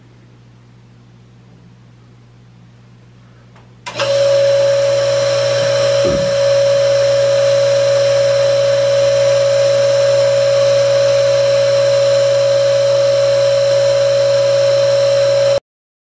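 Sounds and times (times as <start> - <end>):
small electric motor whining: 3.9 - 15.6
low hum: 4.2 - 15.5.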